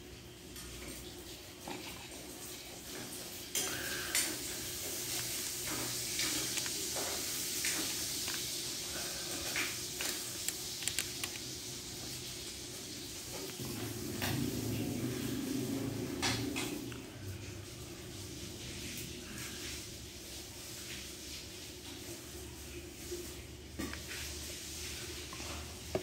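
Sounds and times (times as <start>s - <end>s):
screwdriver clicks and scrapes: 10.5s - 11.4s.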